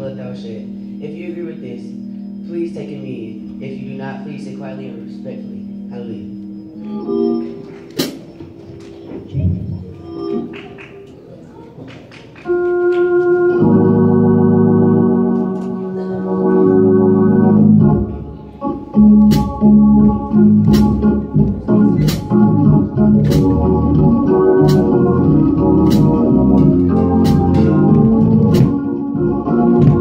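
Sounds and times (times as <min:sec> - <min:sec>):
organ chords: 0:00.0 - 0:30.0
drum kit playing: 0:19.0 - 0:30.0.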